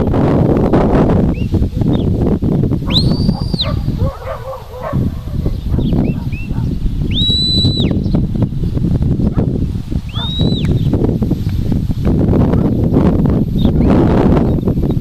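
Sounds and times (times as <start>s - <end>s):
wind rumbling on microphone: 0.0s - 15.0s
shepherd's whistle: 2.8s - 8.2s, 10.1s - 10.9s.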